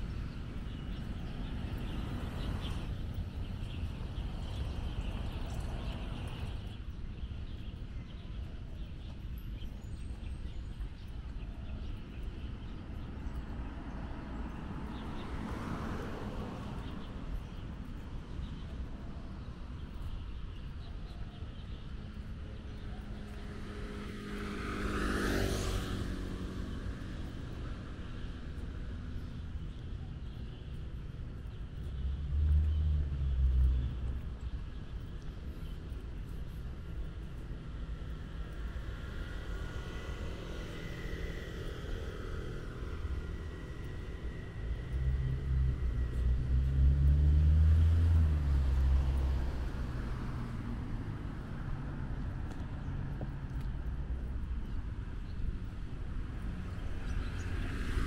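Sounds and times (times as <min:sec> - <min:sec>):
traffic hum: 0:00.0 - 0:58.0
vehicle passing: 0:23.2 - 0:28.6, 0:37.6 - 0:54.6.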